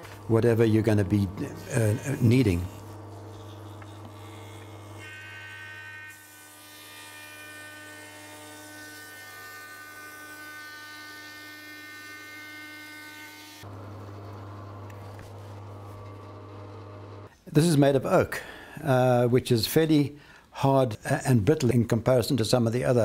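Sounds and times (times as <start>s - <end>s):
electrical hum: 0.0s - 5.9s, 13.6s - 17.3s.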